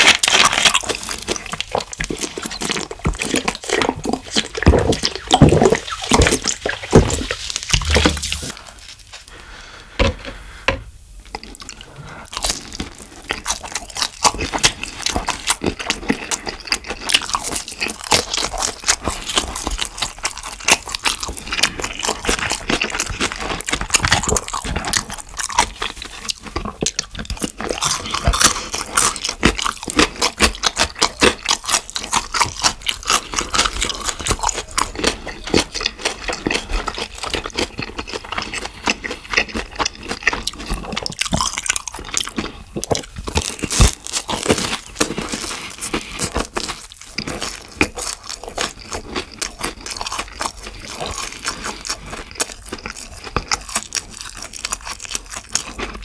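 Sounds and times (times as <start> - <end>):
gulping from a plastic bottle: 0.0 - 8.6
crunching and chewing food: 0.0 - 56.0.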